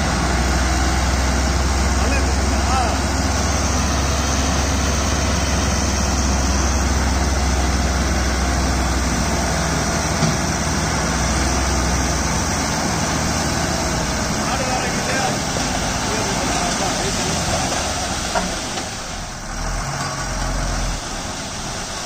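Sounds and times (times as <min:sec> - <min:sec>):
diesel lorry engine running: 0:00.0 - 0:22.0.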